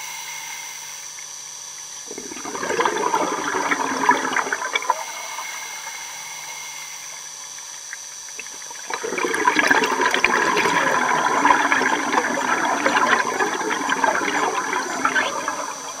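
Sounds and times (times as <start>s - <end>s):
air bubbles gurgling underwater: 2.1s - 5.1s, 7.8s - 16.0s
underwater hissing: 2.1s - 7.5s, 8.7s - 16.0s.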